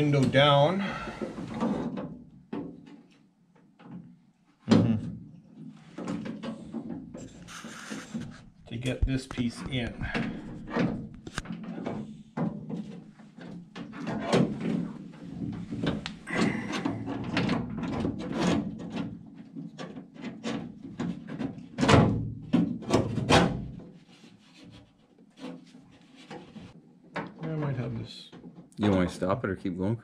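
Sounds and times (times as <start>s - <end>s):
knocks clicks and scraping in metal door: 5.9s - 23.9s.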